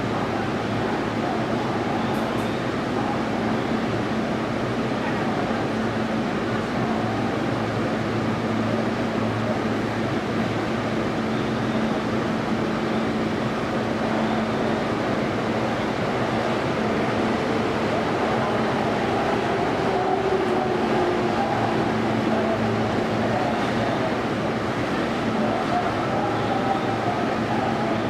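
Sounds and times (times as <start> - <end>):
subway car cabin noise: 0.0 - 28.0.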